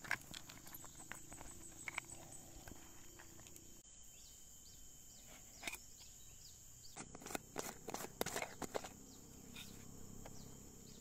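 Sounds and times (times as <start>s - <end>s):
high insect drone: 0.0s - 11.0s.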